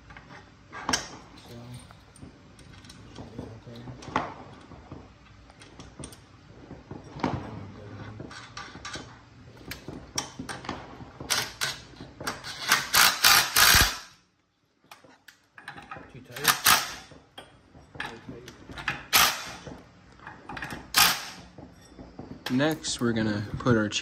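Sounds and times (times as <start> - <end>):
impact driver hammering: 12.6 - 14.1.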